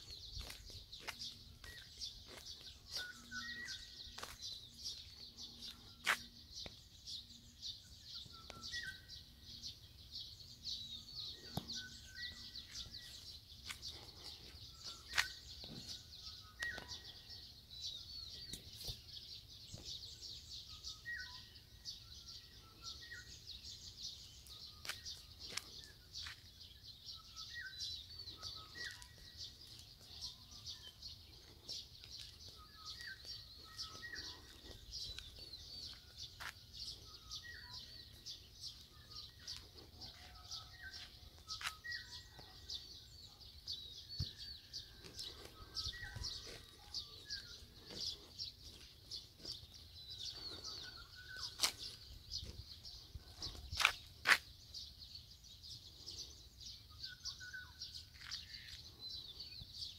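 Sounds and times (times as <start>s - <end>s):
lower bird calls: 0.0s - 6.8s, 24.3s - 54.5s
small birds chirping: 0.0s - 59.9s.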